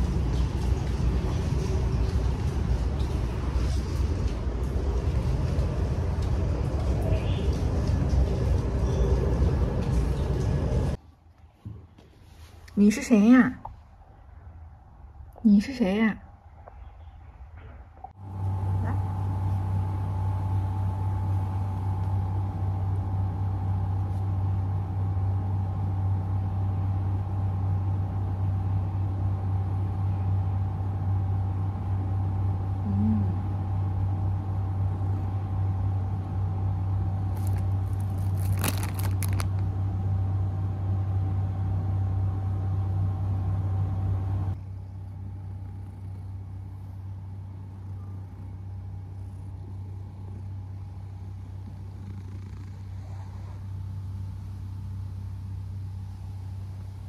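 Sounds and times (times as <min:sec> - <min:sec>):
handling rustle: 0:37.3 - 0:39.6
cat purring: 0:44.6 - 0:54.0.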